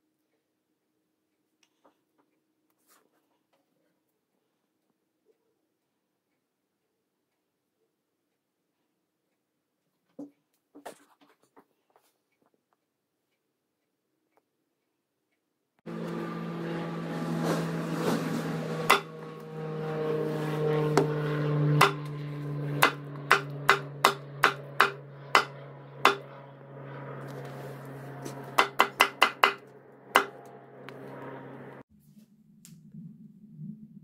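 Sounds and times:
low hum: 15.9 - 34.0
cleaver chopping on wooden block: 18.9 - 19.1, 21.8 - 22.0, 22.8 - 26.2, 28.5 - 29.6, 30.2 - 30.4.

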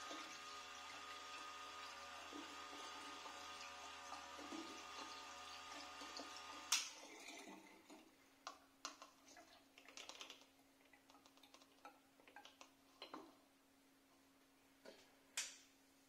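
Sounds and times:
small electric pump humming: 0.0 - 6.9.

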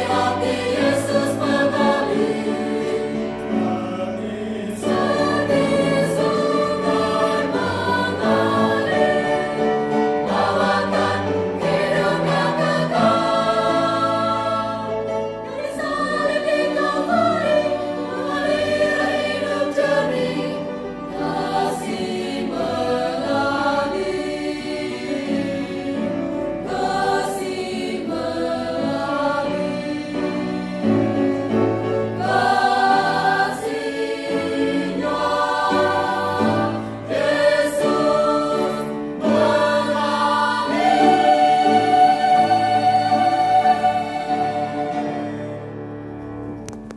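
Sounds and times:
mixed choir singing a hymn: 0.0 - 46.3.

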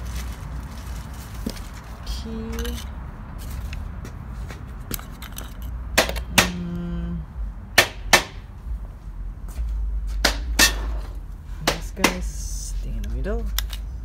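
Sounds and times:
frame parts knocking on concrete: 10.1 - 12.4.

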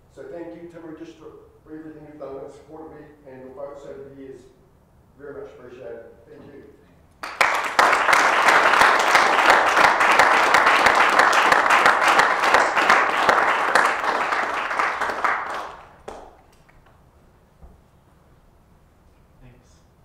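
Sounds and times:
people clapping: 7.2 - 17.0.

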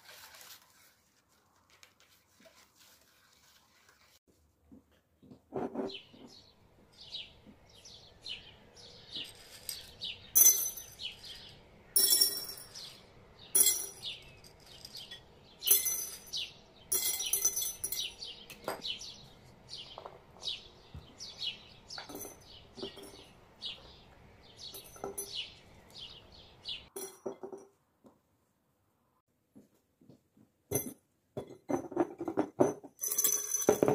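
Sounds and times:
chickpeas clinking into glass jars: 9.1 - 18.6, 32.9 - 33.9.

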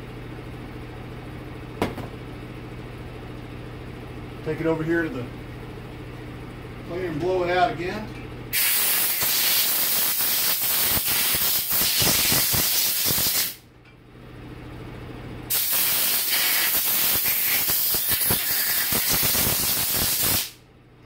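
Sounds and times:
air blow gun hissing: 8.5 - 13.6, 15.5 - 20.6.

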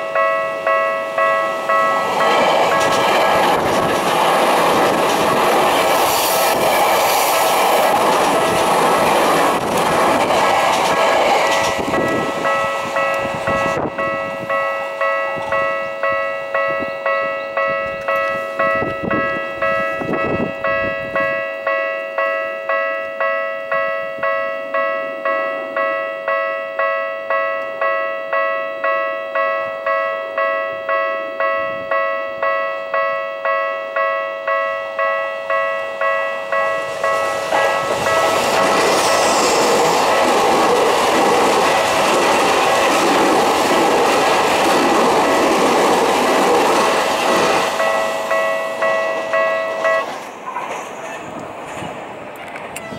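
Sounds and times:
level crossing bell dinging: 0.0 - 3.0, 11.9 - 38.4, 47.8 - 50.1
train rumbling: 0.0 - 52.9.

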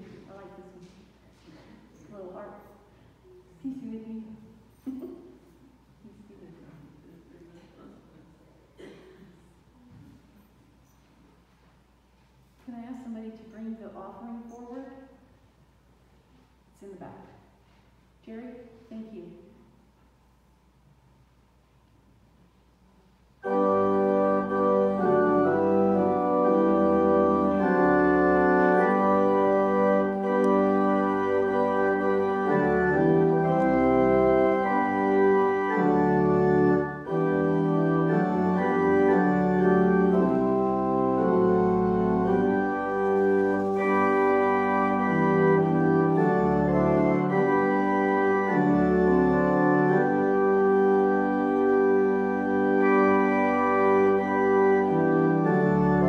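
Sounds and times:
organ playing sustained chords: 0.0 - 1.0, 23.4 - 56.0.

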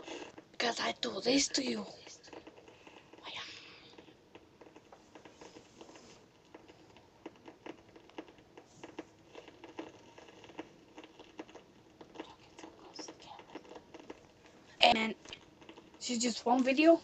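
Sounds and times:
faint small clicks and taps: 2.0 - 16.8.

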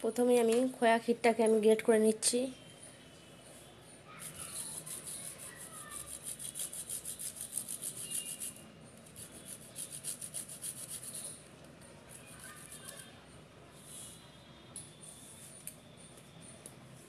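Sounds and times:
grating on metal hand grater: 4.2 - 11.3.

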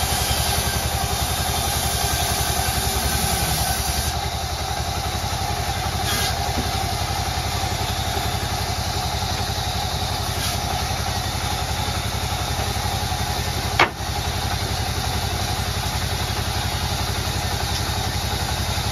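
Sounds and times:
band saw running: 0.0 - 18.9
sharp knock: 13.8 - 14.1.

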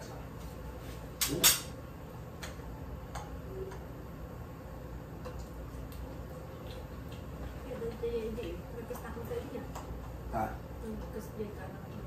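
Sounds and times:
cutlery clinking against plates: 1.2 - 1.8.

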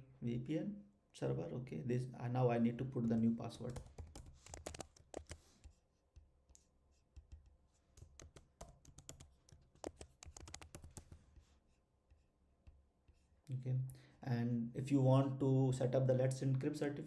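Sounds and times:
computer keyboard typing: 3.5 - 5.8, 7.2 - 11.2.

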